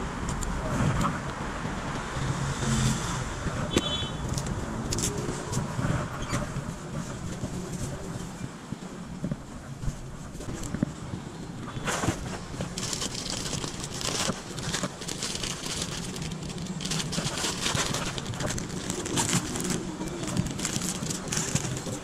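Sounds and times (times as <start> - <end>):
plastic packets crinkling: 12.0 - 22.0.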